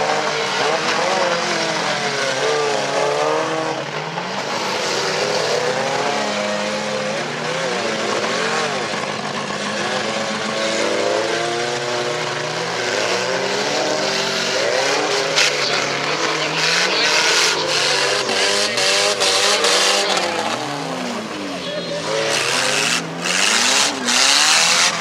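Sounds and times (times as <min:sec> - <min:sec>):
car engines revving: 0:00.0 - 0:25.0
cars knocking together: 0:00.2 - 0:25.0.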